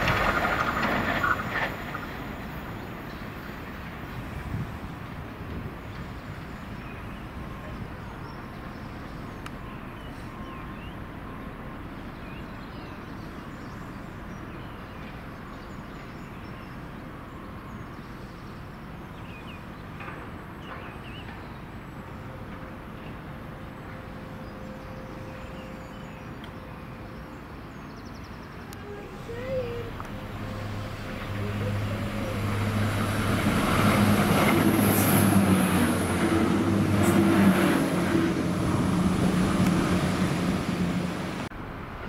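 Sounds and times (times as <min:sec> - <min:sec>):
train low rumble: 0:00.0 - 0:42.0
birds chirping: 0:23.0 - 0:40.6.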